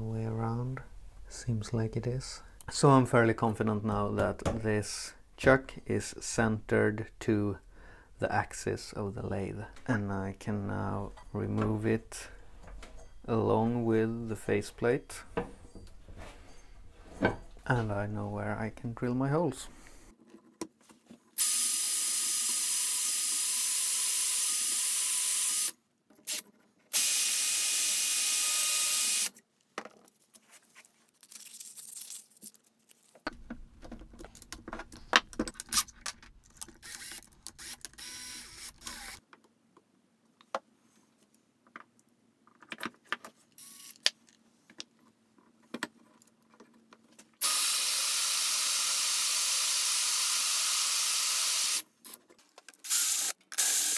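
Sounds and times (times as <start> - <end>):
cordless drill drilling: 21.4 - 25.7, 26.3 - 29.3, 36.8 - 39.2, 47.4 - 51.8, 52.8 - 53.9.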